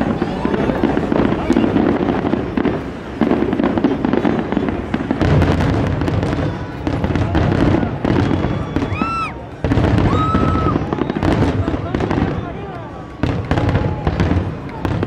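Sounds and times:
continuous rushing hiss: 0.0 - 15.0
fireworks crackling and popping: 0.0 - 15.0
firework whistle: 5.4 - 12.4.

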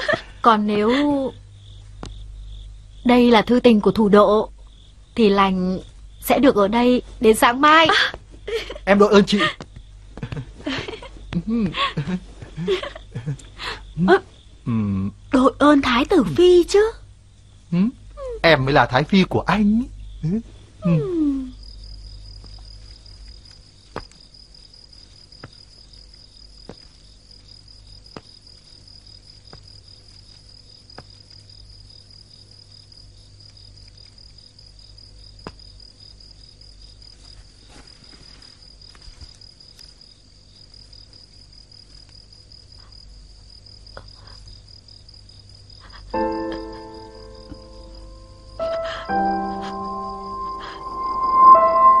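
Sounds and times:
crickets chirping: 0.0 - 52.0
low hum: 47.1 - 52.0.

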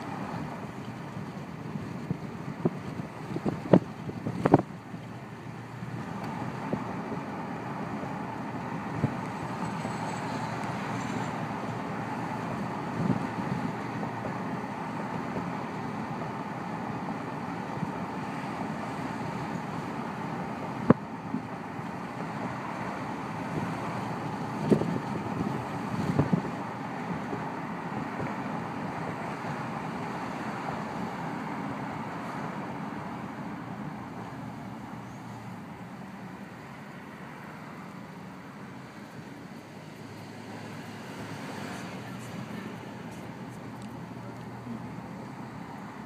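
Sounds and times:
car road and engine noise: 0.0 - 46.0
wind on microphone: 1.1 - 4.9, 5.9 - 14.6, 23.4 - 28.4.

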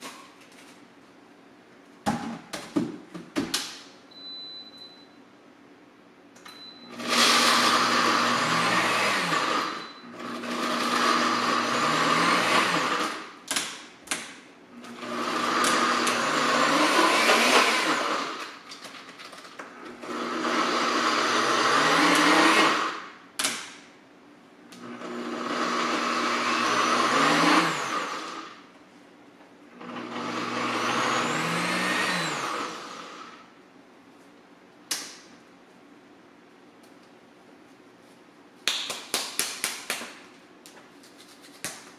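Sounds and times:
blender grinding: 6.9 - 13.3, 14.8 - 18.6, 19.8 - 23.1, 24.8 - 28.6, 29.8 - 33.5.

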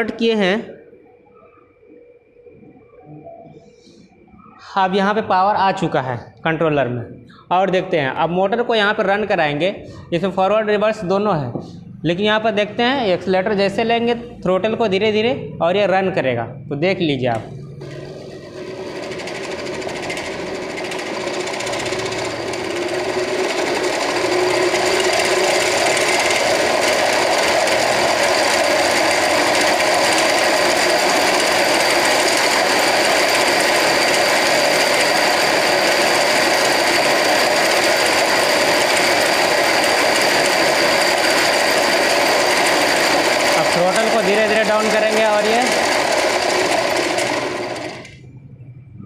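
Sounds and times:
electric motor spinning wheel: 17.8 - 48.2
drive chain rattling: 18.6 - 48.1.

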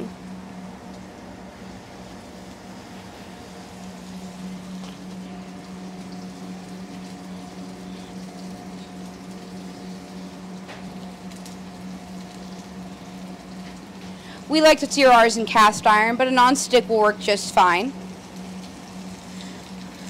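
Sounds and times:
steady low hum: 0.0 - 20.0
fish sizzling in butter: 3.6 - 15.7.

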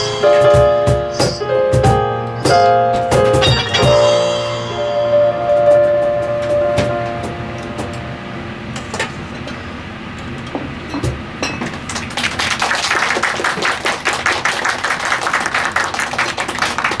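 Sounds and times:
audience applauding: 11.8 - 17.0.

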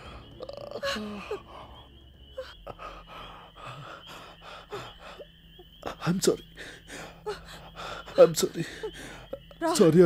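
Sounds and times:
person breathing heavily: 0.0 - 5.3, 6.5 - 9.3.

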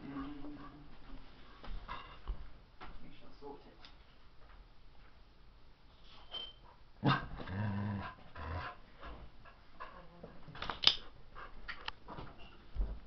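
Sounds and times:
dog growling: 7.0 - 8.8.

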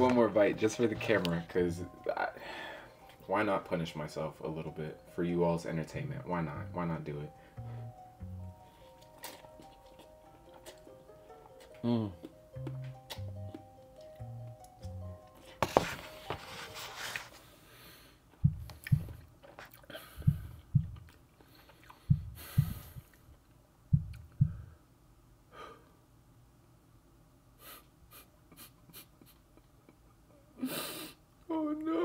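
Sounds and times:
deep thumps: 18.4 - 19.2, 20.2 - 21.1, 22.1 - 23.1, 23.9 - 24.7.

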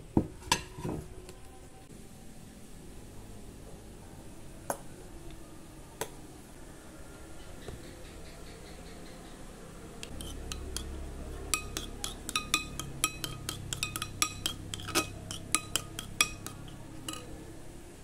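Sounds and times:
spoon clinking glass bowl: 10.0 - 17.4.

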